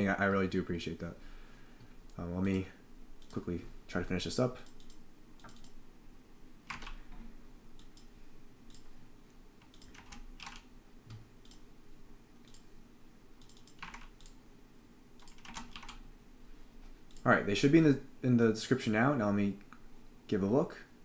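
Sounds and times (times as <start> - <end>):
computer keyboard typing: 4.6 - 5.8, 6.6 - 7.0, 9.6 - 10.7, 13.4 - 14.4, 15.2 - 16.0.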